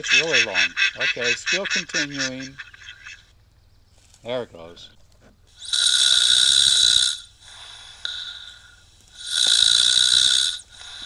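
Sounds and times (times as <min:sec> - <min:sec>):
recorded snoring through speakers: 0:05.6 - 0:11.0
quiet breath: 0:07.3 - 0:09.3, 0:10.5 - 0:11.0.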